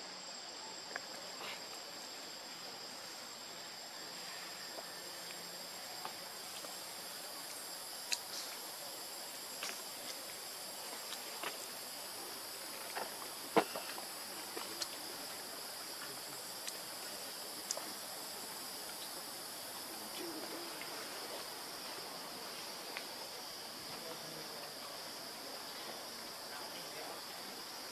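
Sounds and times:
insects droning: 0.0s - 27.9s.

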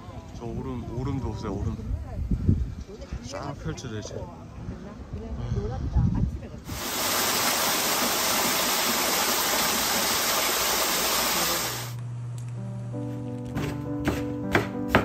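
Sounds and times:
waterfall rushing: 6.7s - 12.0s
soft background music: 12.4s - 15.0s.

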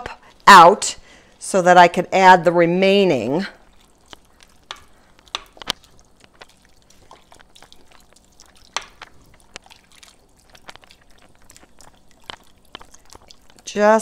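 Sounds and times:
wooden spoon stirring soup: 2.6s - 14.0s
broth pouring into saucepan: 3.6s - 13.7s.

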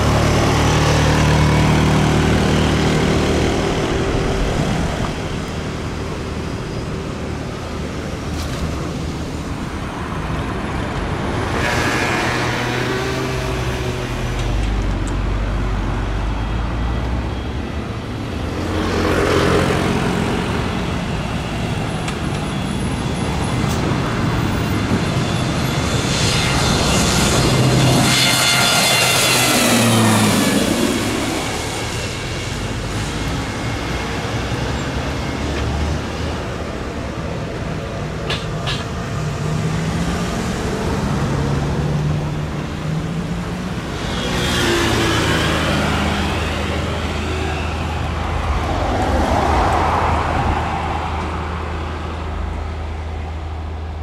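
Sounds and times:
turboprop plane passing: 0.0s - 14.8s, 18.1s - 38.3s, 38.9s - 54.0s
high engine whine: 0.0s - 54.0s
twin turboprop engines: 0.0s - 54.0s.

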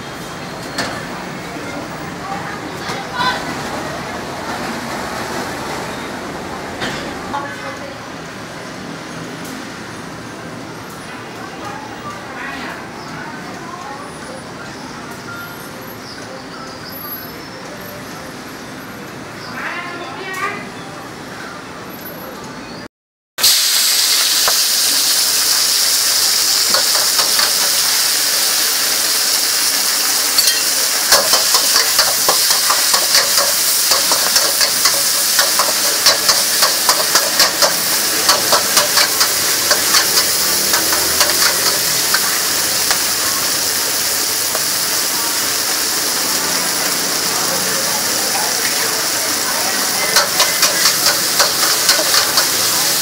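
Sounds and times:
noodles sizzling in a wok: 23.4s - 53.0s
steam hissing: 23.4s - 53.0s
metal spatula scraping a wok: 30.4s - 43.0s, 50.1s - 52.8s.

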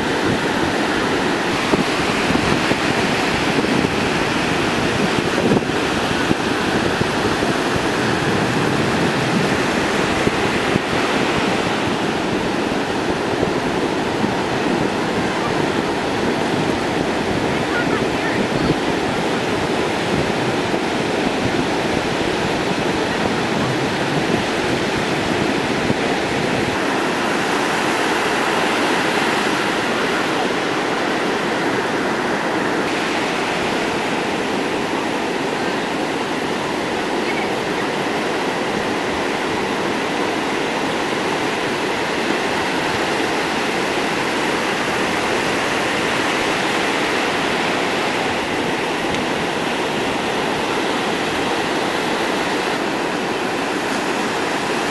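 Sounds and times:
ocean surf breaking: 0.0s - 54.9s.

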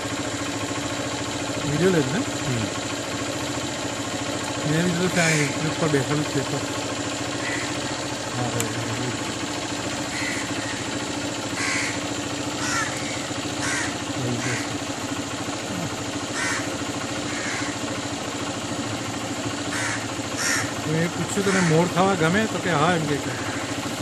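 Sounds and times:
steady low hum: 0.0s - 24.0s
crow cawing: 5.1s - 5.8s, 7.2s - 8.2s, 10.0s - 14.9s, 16.2s - 18.1s, 19.6s - 23.8s.

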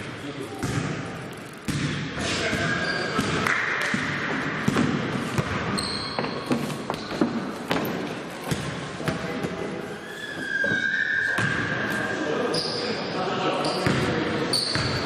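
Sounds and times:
basketball bouncing on court: 0.5s - 9.5s, 13.8s - 15.0s
shoe squeaks: 2.3s - 3.2s, 5.7s - 7.2s, 9.8s - 13.0s, 13.6s - 15.0s.

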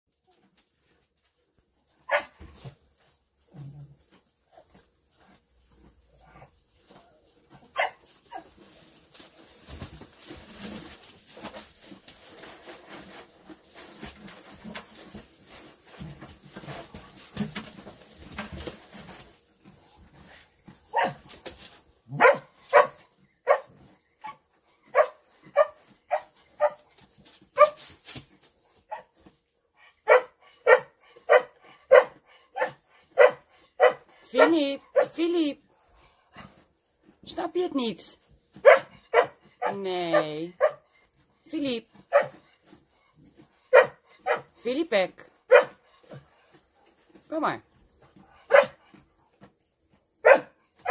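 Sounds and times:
dog barking: 2.1s - 2.4s, 7.8s - 8.0s, 20.9s - 21.2s, 22.1s - 26.8s, 27.6s - 27.8s, 30.0s - 35.2s, 38.6s - 40.9s, 42.1s - 42.4s, 43.7s - 44.5s, 45.5s - 45.8s, 48.5s - 48.8s, 50.2s - 50.9s.

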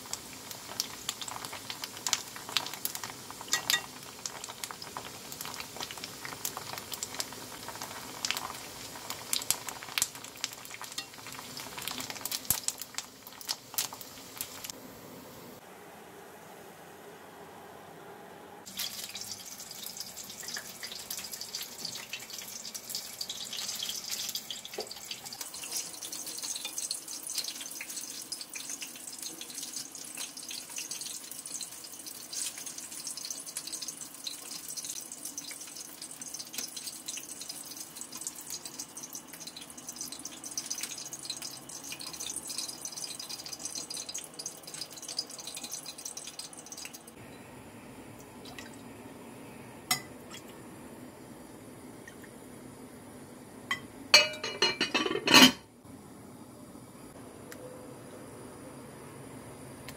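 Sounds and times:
oil sizzling in frying pan: 0.0s - 14.8s, 18.6s - 47.2s.

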